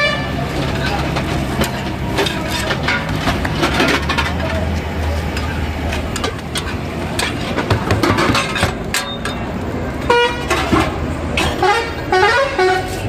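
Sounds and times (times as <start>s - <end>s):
vehicle horn honk: 0.0s - 0.4s, 10.1s - 10.7s, 11.4s - 13.0s
street traffic: 0.0s - 13.0s.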